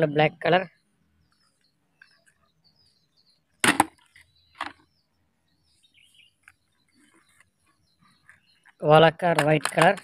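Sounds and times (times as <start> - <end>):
plastic toy vehicles clacking: 8.7 - 10.0.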